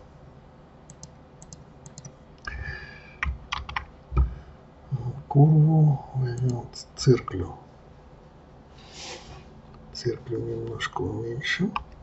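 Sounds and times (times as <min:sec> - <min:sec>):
mouse clicks: 0:00.9 - 0:02.2.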